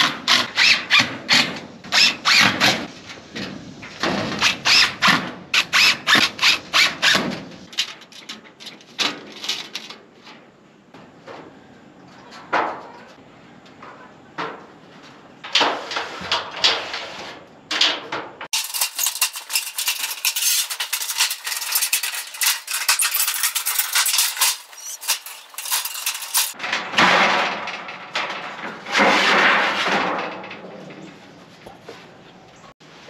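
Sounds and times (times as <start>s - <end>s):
sheet metal clattering and scraping: 2.5s - 13.2s, 13.8s - 31.5s
sheet metal rattling: 18.5s - 30.6s.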